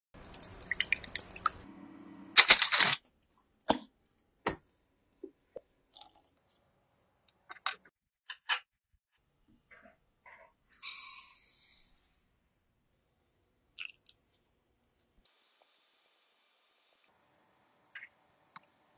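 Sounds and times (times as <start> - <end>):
utensils and dishes clicking: 2.4 - 3.0.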